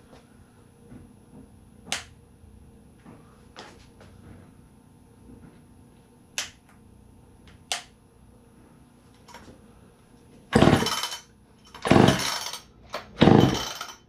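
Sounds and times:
chainsaw recoil starter whir: 0:10.6 - 0:11.1, 0:11.7 - 0:13.9.

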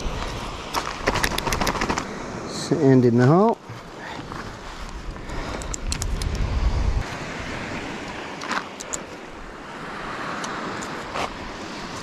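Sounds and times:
tent gear clicks and rustles: 0:00.2 - 0:02.1
wind buffeting microphone: 0:04.3 - 0:12.0.

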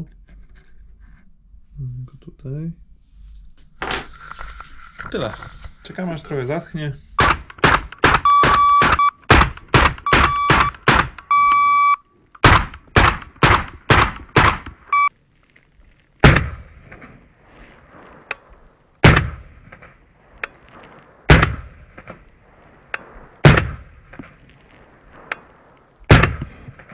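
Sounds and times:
suppressed rifle shots: 0:07.2 - 0:11.2, 0:12.4 - 0:14.9, 0:16.2 - 0:17.2, 0:17.9 - 0:22.2, 0:22.9 - 0:26.9
steady electronic beep: 0:08.2 - 0:09.2, 0:10.0 - 0:12.0, 0:14.9 - 0:15.1.

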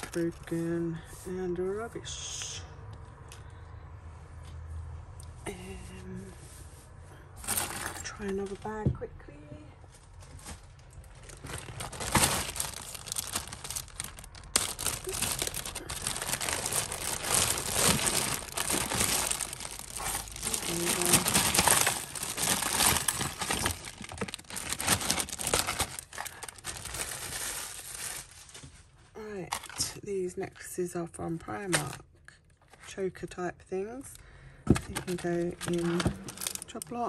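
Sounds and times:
plastic bag crinkling: 0:00.0 - 0:00.5, 0:07.4 - 0:08.8, 0:10.1 - 0:28.8, 0:34.8 - 0:37.0.

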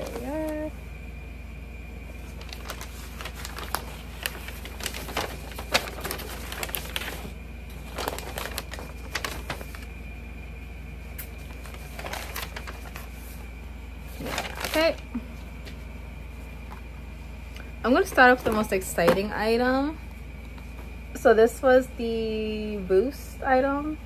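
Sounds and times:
paper rustling and crinkling: 0:00.0 - 0:00.7, 0:02.1 - 0:09.9, 0:11.2 - 0:15.9.

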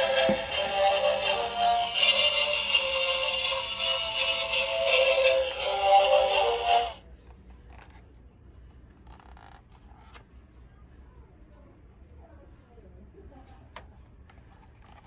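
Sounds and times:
toy car electronic tune with singing: 0:00.0 - 0:07.0.

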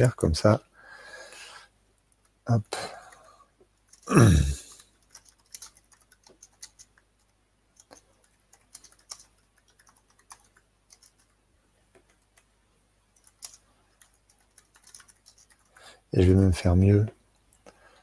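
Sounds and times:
typing on computer keyboard: 0:04.7 - 0:12.5, 0:13.1 - 0:15.8.

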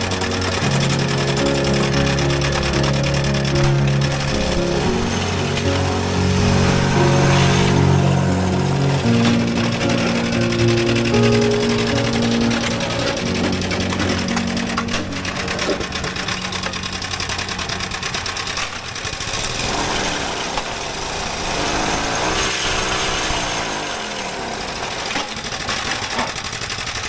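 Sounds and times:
block-making machine rattling: 0:00.0 - 0:06.1, 0:08.8 - 0:21.2, 0:24.1 - 0:27.0
humming tone gliding up: 0:00.0 - 0:18.0.

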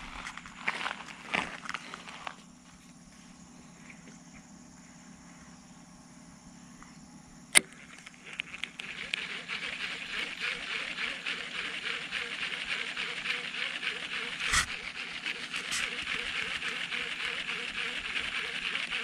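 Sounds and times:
fishing reel ticking whir: 0:07.5 - 0:19.0
sharp reel click: 0:07.5 - 0:19.0.

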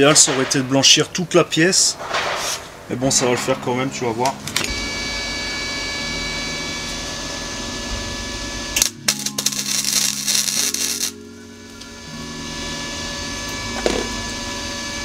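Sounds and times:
welding arc crackling: 0:04.4 - 0:12.0.

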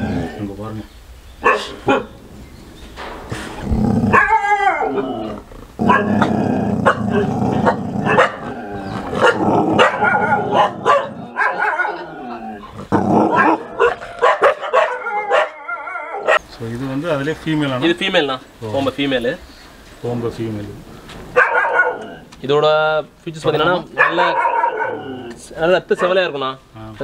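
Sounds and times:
dog growling and snarling: 0:03.3 - 0:14.2.

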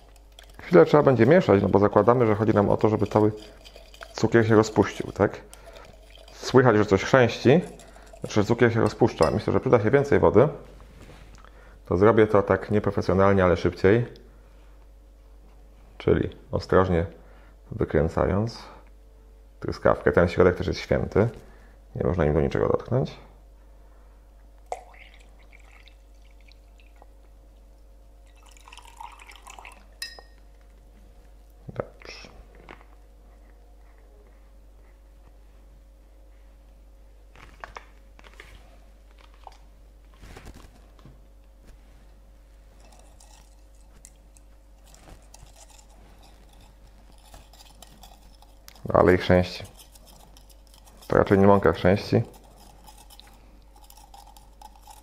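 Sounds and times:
water trickling into glass: 0:00.0 - 0:09.4, 0:24.7 - 0:27.0, 0:28.2 - 0:30.4
liquid being stirred: 0:00.0 - 0:09.8, 0:24.7 - 0:30.5, 0:42.7 - 0:55.0
glass clink: 0:07.6 - 0:09.6, 0:28.7 - 0:30.4.

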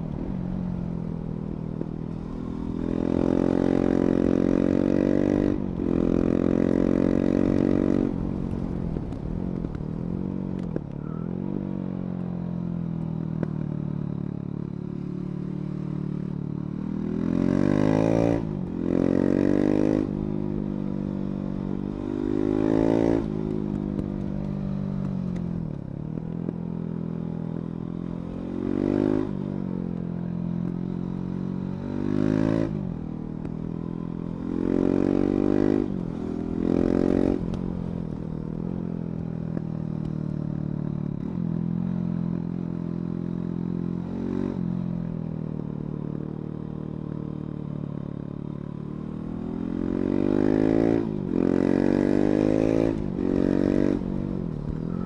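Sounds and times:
motorcycle engine revving: 0:14.8 - 0:55.0.

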